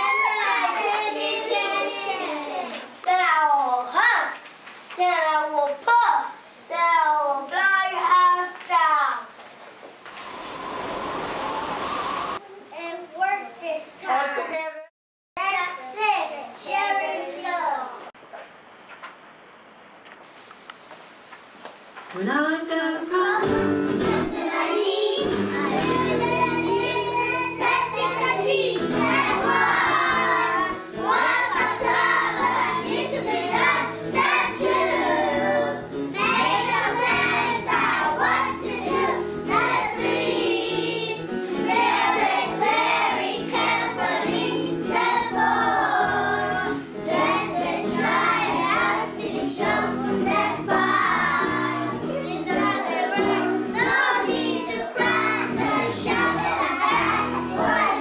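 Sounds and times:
children singing in unison: 24.0 - 58.0.

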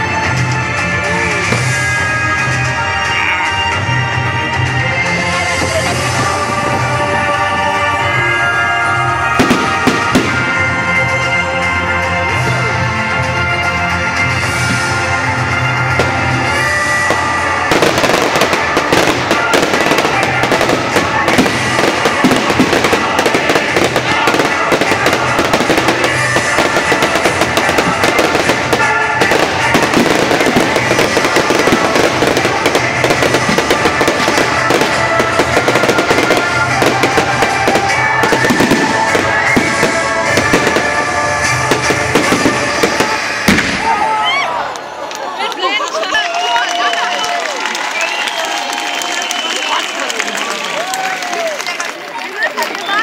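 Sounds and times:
fireworks crackling and banging: 0.0 - 12.8, 13.9 - 44.2, 45.1 - 53.0
show music: 0.0 - 53.0.

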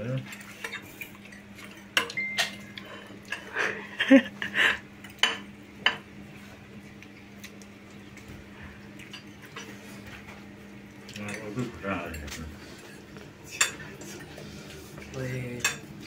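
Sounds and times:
steady low hum: 0.0 - 16.0
forks clinking on ceramic plates: 0.3 - 3.5, 11.1 - 12.4, 13.5 - 14.3, 15.5 - 15.9.

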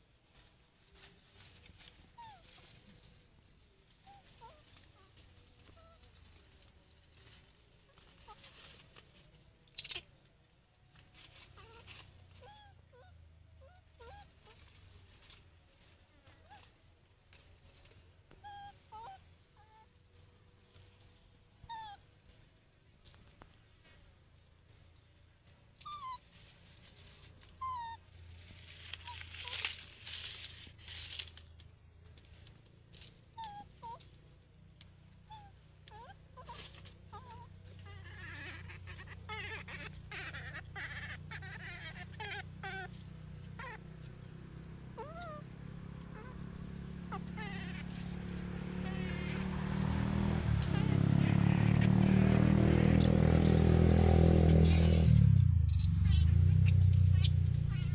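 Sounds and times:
dry leaves crackling: 0.2 - 12.6, 13.9 - 19.6, 24.6 - 57.9
baby monkey squeaky calls: 1.9 - 2.8, 4.0 - 6.4, 9.7 - 10.1, 11.2 - 14.9, 18.4 - 19.9, 21.6 - 22.0, 25.8 - 29.9, 33.3 - 34.2, 35.2 - 43.9, 45.0 - 57.9.

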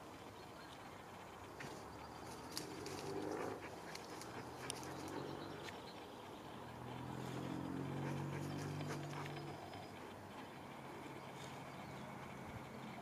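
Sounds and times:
paws crackling through dry leaves: 1.6 - 5.8.

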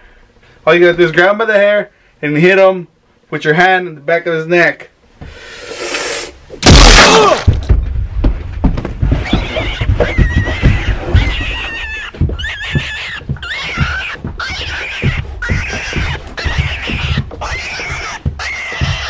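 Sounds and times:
loud cry: 6.6 - 7.5
dull thumps: 6.6 - 19.0.

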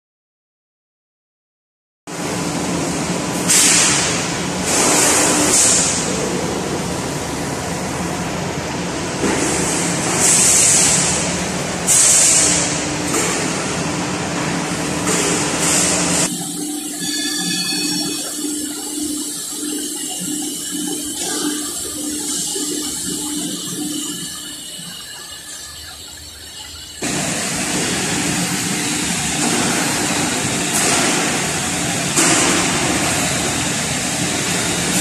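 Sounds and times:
machine hum: 2.1 - 35.0
coolant spray rushing: 2.6 - 8.1, 8.9 - 17.0, 18.3 - 35.0
thin high whining tones: 16.3 - 29.2.

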